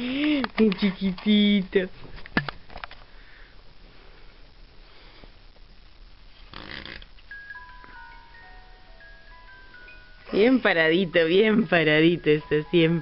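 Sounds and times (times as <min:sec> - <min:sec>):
simple electronic tune: 0:07.3 - 0:13.0.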